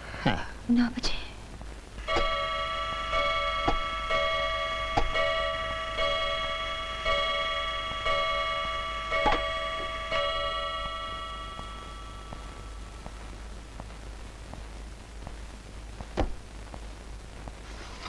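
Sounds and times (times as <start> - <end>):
clock chiming strikes: 2.0 - 13.0
clock ticking: 2.0 - 13.2.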